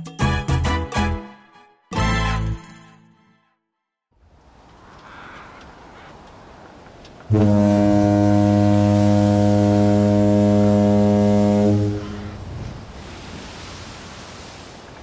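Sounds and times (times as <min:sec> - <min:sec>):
ship's deep horn blast: 0:07.3 - 0:12.6.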